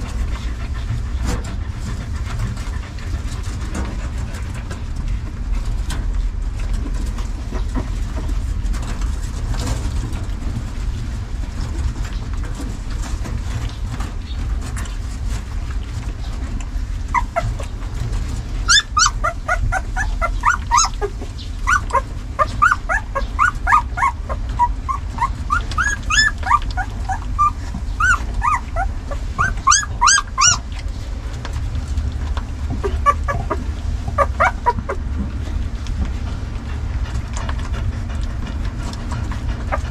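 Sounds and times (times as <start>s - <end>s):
puppies squealing and whimpering: 17.0s - 30.9s, 32.6s - 35.2s, 39.4s - 39.9s.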